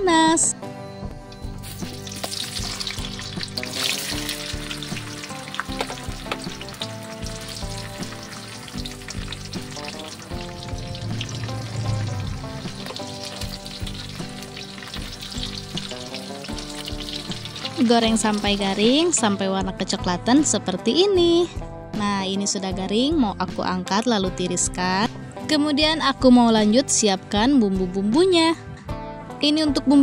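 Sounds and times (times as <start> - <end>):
sausages sizzling in hot oil: 1.5 - 19.4.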